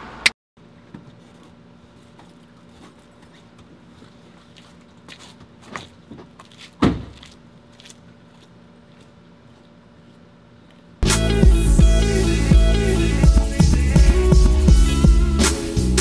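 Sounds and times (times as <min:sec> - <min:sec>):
footsteps on wet pavement: 0:02.7 - 0:09.6
loud thump: 0:06.8 - 0:07.2.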